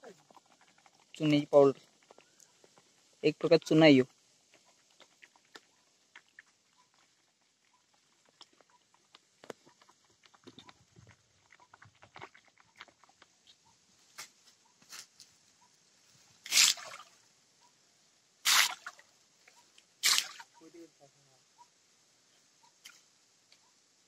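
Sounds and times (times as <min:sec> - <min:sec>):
splashes in a stream: 0:16.4 - 0:17.2, 0:18.4 - 0:19.1, 0:20.0 - 0:20.6.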